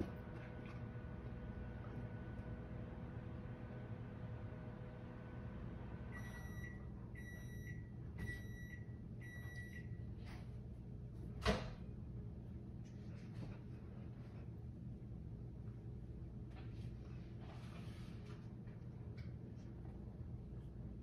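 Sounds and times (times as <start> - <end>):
appliance electronic beeps: 6.1 - 10.0.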